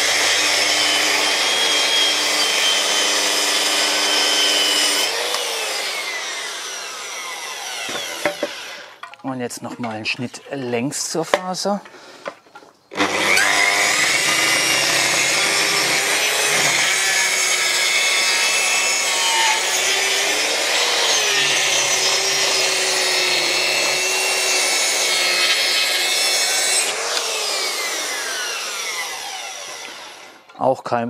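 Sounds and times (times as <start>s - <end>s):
saw blade winding down: 0.0s - 9.0s, 12.9s - 30.6s
circular saw cutting wood: 0.0s - 9.1s, 12.9s - 30.6s.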